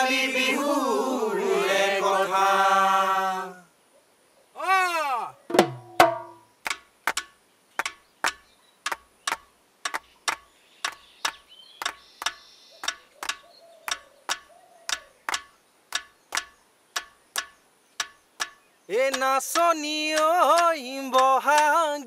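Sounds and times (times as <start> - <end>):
woody percussion clicks: 5.7 - 21.8.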